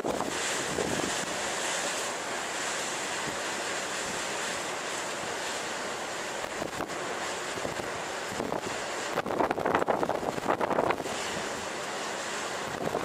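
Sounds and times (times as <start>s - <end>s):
wind buffeting the microphone: 0.0s - 1.7s, 6.4s - 11.9s, 12.5s - 13.0s
surf breaking on rough sea: 0.0s - 13.0s.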